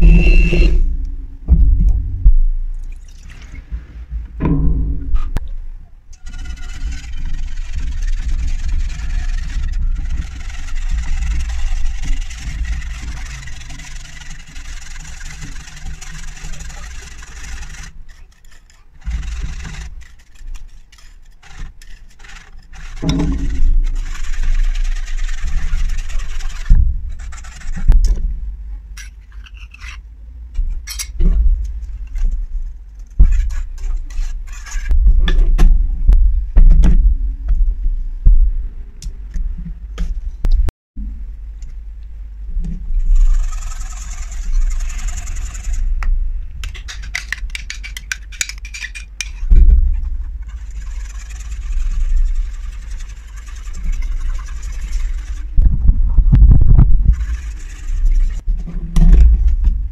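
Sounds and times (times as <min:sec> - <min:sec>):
low rumble: 0:00.0 - 0:03.0, 0:03.6 - 0:06.1, 0:34.8 - 0:46.8, 0:53.6 - 0:59.9
knocks and clatters: 0:03.7 - 0:05.5, 0:06.2 - 0:28.3
whisk scraping in frying pan: 0:06.2 - 0:27.9, 0:43.0 - 0:45.9, 0:50.5 - 0:55.5, 0:57.0 - 0:58.4.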